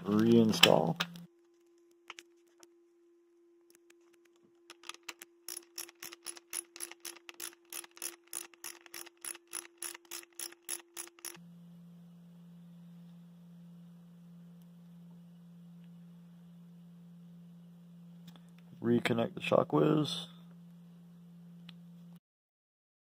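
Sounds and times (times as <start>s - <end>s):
socket ratchet clicking: 4.7s - 11.4s.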